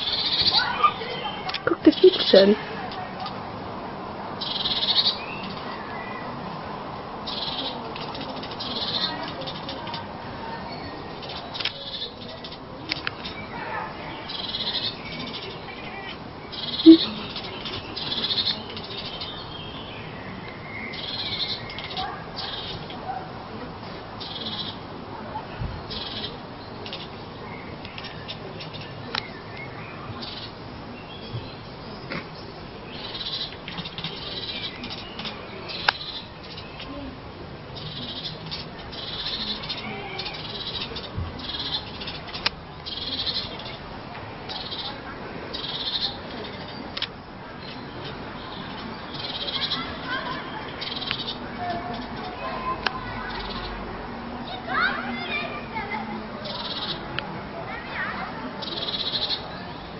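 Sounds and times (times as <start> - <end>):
cat chirping and chattering: 0.0 - 2.6, 16.5 - 19.1
cat chattering: 1.6 - 2.5, 16.6 - 17.6.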